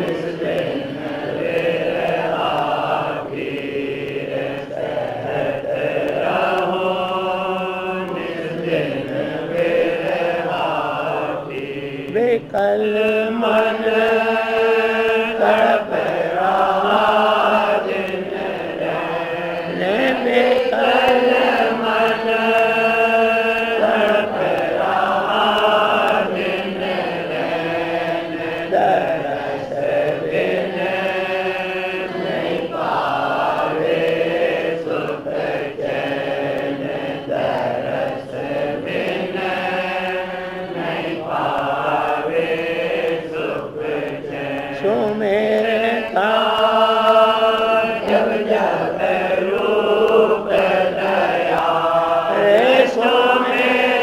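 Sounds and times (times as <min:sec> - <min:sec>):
person singing a hymn: 0:00.0 - 0:54.0.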